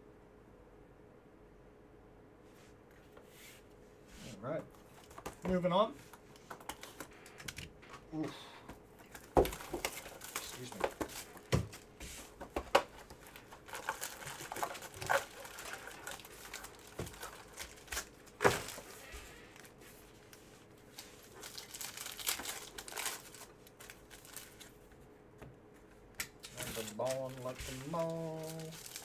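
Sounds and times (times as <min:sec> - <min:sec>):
foil wrapper crinkling and tearing: 0:09.1 - 0:11.4, 0:12.8 - 0:24.8, 0:26.4 - 0:29.0.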